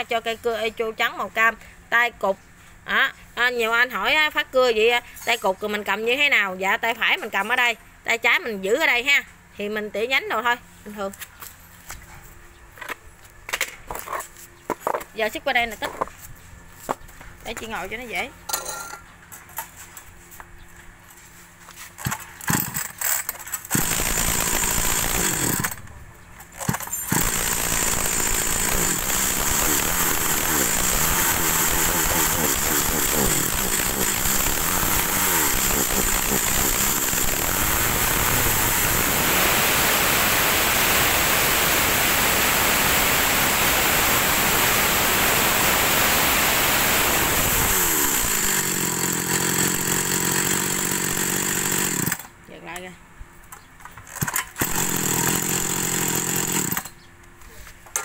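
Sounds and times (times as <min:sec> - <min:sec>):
chainsaw engine revving: 0:22.4 - 0:25.9, 0:26.6 - 0:52.3, 0:54.6 - 0:57.0.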